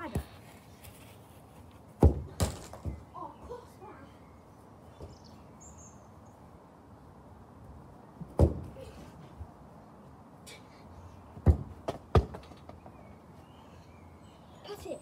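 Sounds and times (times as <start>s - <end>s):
football being kicked: 2.0s - 3.0s, 8.4s - 8.7s, 11.4s - 12.4s.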